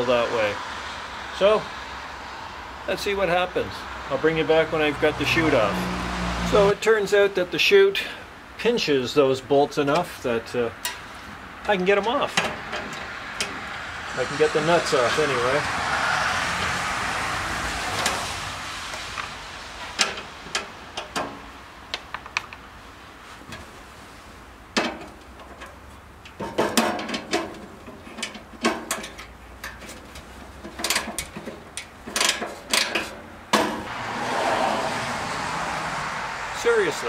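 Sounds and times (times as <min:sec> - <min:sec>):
passing car road noise: 0:00.0 - 0:06.8, 0:10.6 - 0:26.2, 0:33.0 - 0:37.0.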